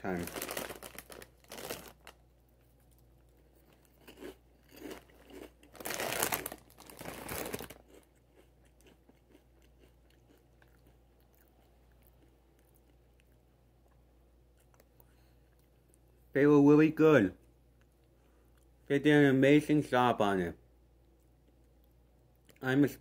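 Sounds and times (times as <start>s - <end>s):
crunching snacks: 0.0s - 14.0s.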